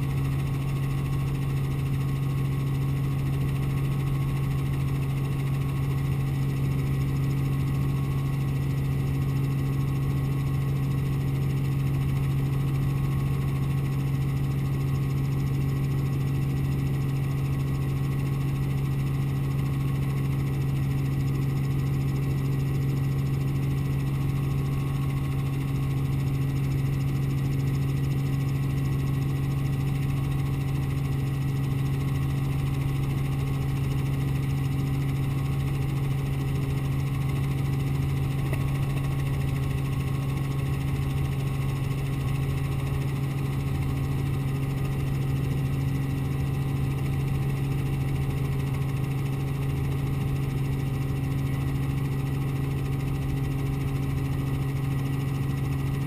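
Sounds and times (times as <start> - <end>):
helicopter engine and rotors drone: 0.0 - 56.0.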